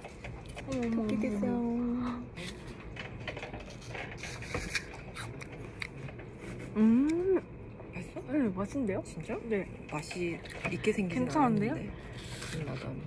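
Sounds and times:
person humming briefly: 6.8s - 7.4s.

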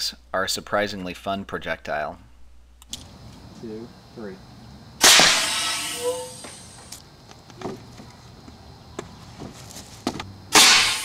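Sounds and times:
cannon shot dying away: 5.0s - 6.5s, 10.5s - 11.0s
handling knocks and scuffs: 6.1s - 10.4s.

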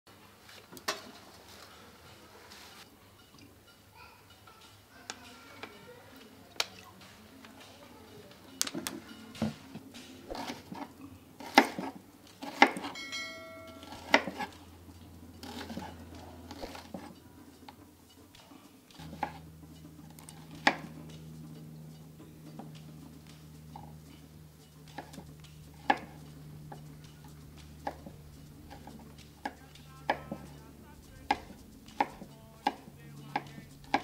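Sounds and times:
metallic ring: 7.6s - 34.0s
knife chopping on wooden board: 10.3s - 13.0s, 13.8s - 14.6s, 15.4s - 17.2s, 18.9s - 19.5s, 20.1s - 21.0s, 24.9s - 30.6s, 31.2s - 34.0s.

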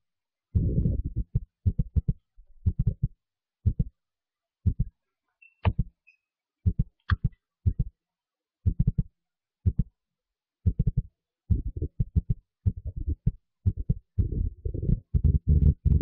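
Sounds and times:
deep low thumps: 0.6s - 3.1s, 3.7s - 3.9s, 4.7s - 4.9s, 10.7s - 16.0s.

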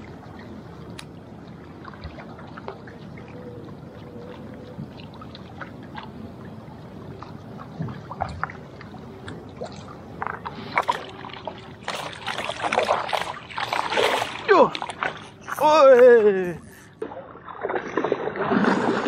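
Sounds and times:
small waves lapping at shore: 0.0s - 19.0s
fishing lure splashing: 9.2s - 17.0s.

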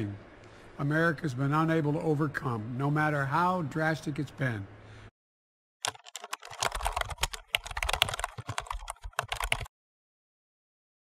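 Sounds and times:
keyboard typing clicks: 5.8s - 9.7s.

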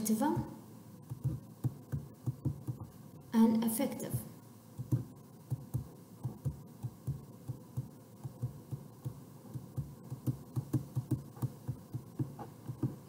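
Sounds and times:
stylus tapping on touchscreen: 1.0s - 3.0s, 4.7s - 13.0s.

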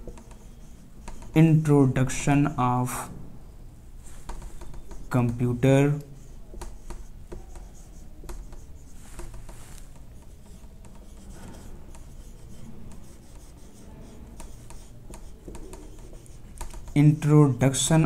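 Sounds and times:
marker scratching on whiteboard: 0.0s - 2.6s, 4.0s - 18.0s
marker tip tapping: 4.2s - 5.4s, 6.5s - 11.3s, 14.3s - 17.0s.

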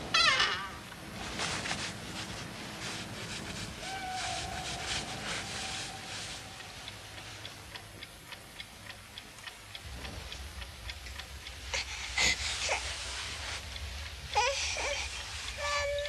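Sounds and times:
clock ticking: 4.5s - 16.0s.

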